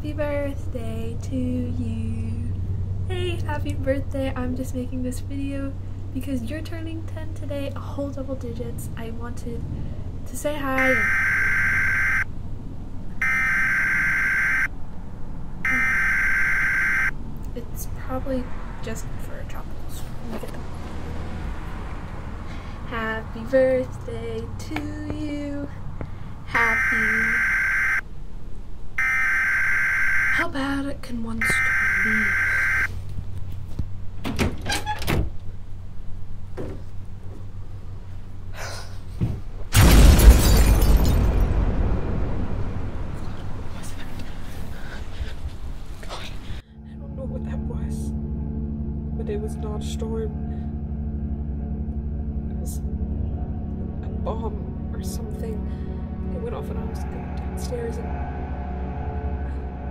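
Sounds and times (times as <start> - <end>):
electronic alarm beeping: 10.8 - 12.3, 13.2 - 14.7, 15.7 - 17.1, 26.7 - 28.0, 29.0 - 30.4, 31.4 - 32.9
loud rumbling explosion: 39.7 - 44.1.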